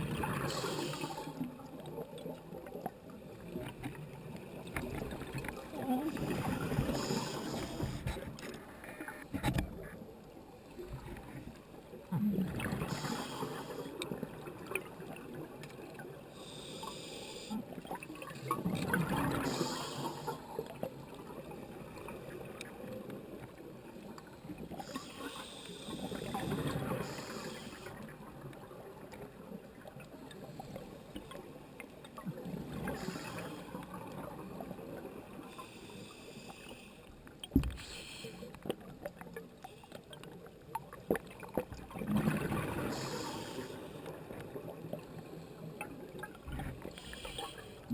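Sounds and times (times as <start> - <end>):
exhaled bubbles gurgling: 0.0 - 8.3, 11.9 - 16.8, 17.7 - 31.4, 32.1 - 35.6, 40.1 - 47.9
scuba regulator breathing underwater: 0.4 - 1.5, 6.2 - 8.1, 12.5 - 14.1, 16.4 - 17.7, 19.2 - 20.6, 24.8 - 28.0, 32.8 - 33.9, 37.8 - 38.5, 42.7 - 44.1, 46.8 - 47.9.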